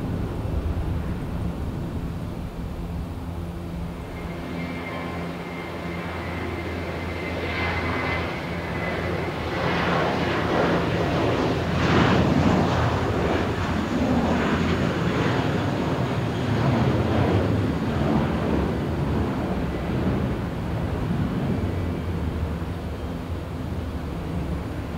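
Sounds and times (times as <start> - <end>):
jet engines roaring: 0.0 - 24.9.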